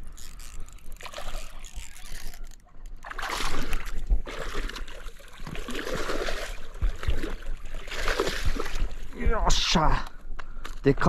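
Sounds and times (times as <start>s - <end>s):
fish splashing at water surface: 0.3s - 9.1s.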